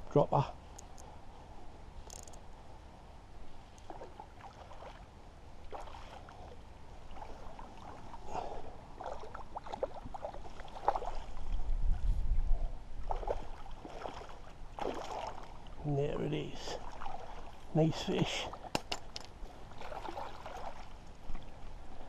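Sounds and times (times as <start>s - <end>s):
fish splashing in water: 13.1s - 15.6s, 19.7s - 21.0s.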